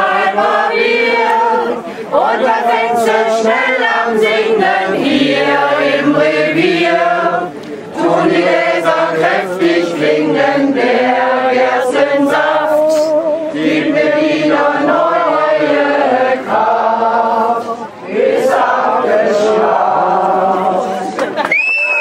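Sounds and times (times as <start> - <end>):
crowd singing together: 0.0 - 21.4.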